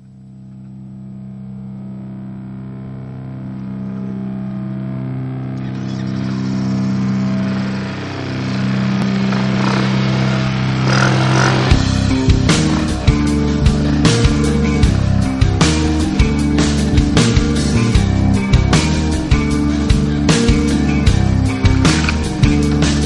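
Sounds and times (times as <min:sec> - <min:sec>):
droning chords: 0:00.0 - 0:23.0
guitar: 0:00.0 - 0:23.0
drums: 0:05.6 - 0:23.0.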